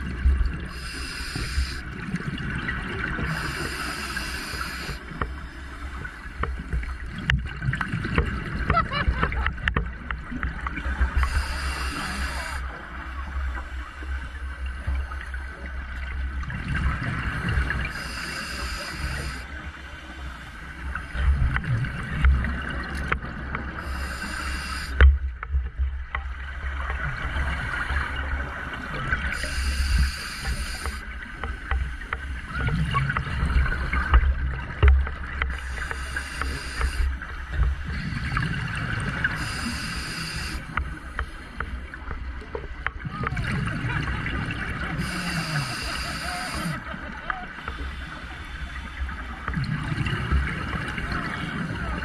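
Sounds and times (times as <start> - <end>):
low rumble of water: 0.0 - 52.0
diver breathing through regulator: 0.7 - 1.9, 3.2 - 6.2, 11.2 - 12.7, 17.9 - 19.5, 23.8 - 25.0, 29.4 - 31.1, 35.5 - 37.2, 39.3 - 40.8, 44.9 - 46.9.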